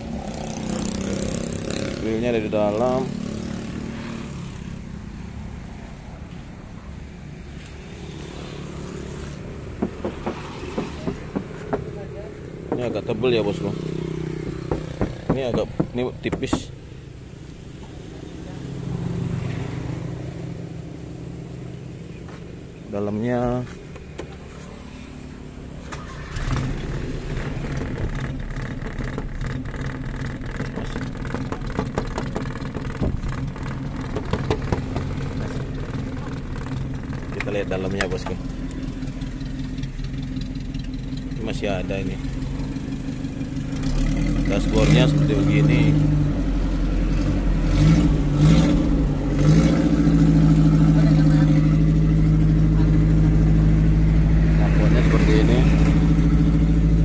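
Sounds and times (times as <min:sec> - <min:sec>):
vehicle engine running: 0:00.0 - 0:57.0
light taps and knocks: 0:09.8 - 0:12.0, 0:30.5 - 0:33.4, 0:34.0 - 0:35.4.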